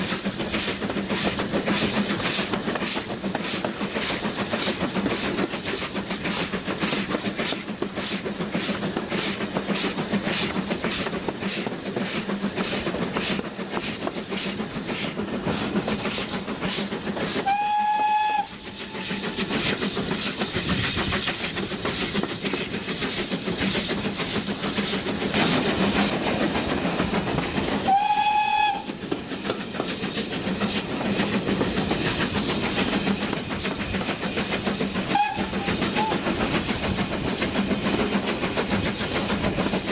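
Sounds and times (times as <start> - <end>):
train rhythmic clatter: 0.0 - 39.9
steam locomotive whistle: 17.4 - 19.3, 27.8 - 29.0, 35.0 - 36.2.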